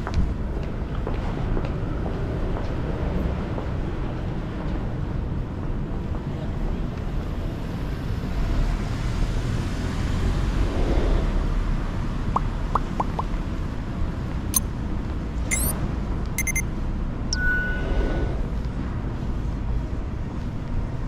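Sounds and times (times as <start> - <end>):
traffic rumble: 0.0 - 21.0
high electronic beeps: 15.5 - 15.8, 16.4 - 16.6, 17.3 - 17.9
short rising chirps: 15.5 - 15.8, 16.4 - 16.6, 17.4 - 18.4.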